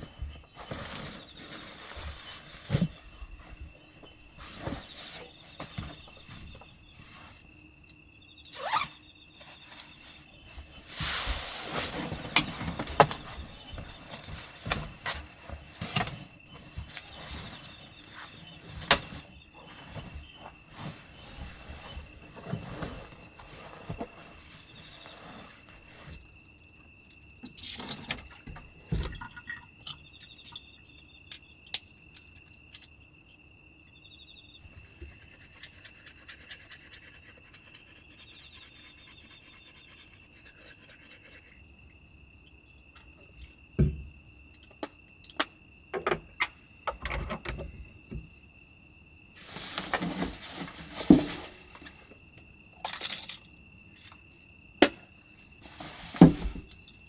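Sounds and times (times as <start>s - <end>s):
rustling: 0.0s - 7.6s, 8.5s - 26.5s, 49.4s - 52.1s, 55.6s - 56.8s
cricket trill: 0.0s - 57.0s.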